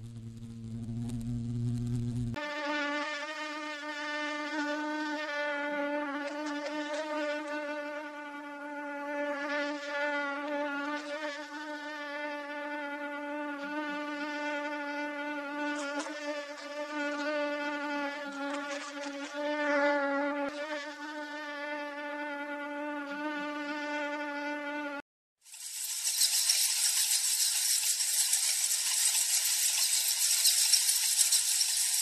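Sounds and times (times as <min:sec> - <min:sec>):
mosquito wing whine: 0:00.0 - 0:25.0.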